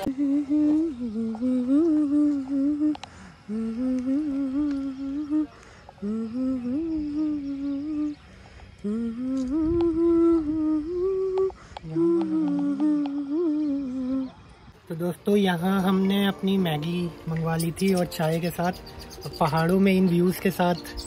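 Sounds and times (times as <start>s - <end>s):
person humming a slow tune: 0.0s - 14.6s.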